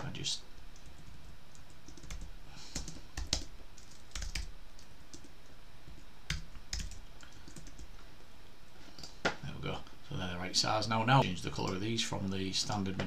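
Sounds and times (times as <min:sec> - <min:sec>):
computer keyboard typing: 0:00.7 - 0:05.3, 0:06.3 - 0:07.9.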